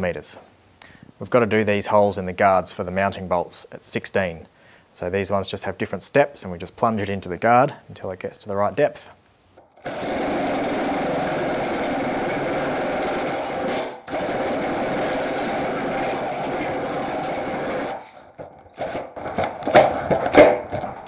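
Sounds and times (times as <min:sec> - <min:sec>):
electric drill cutting sheet metal: 0:09.8 - 0:18.2.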